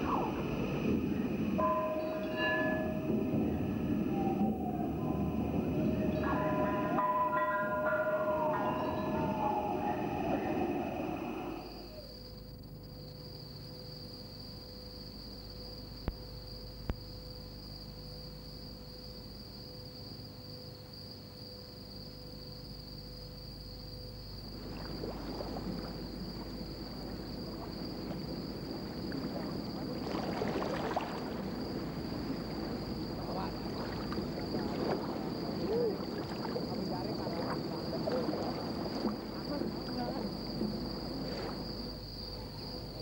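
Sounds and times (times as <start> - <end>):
high insect drone: 0.0 - 43.0
water splashing and rushing: 24.5 - 43.0.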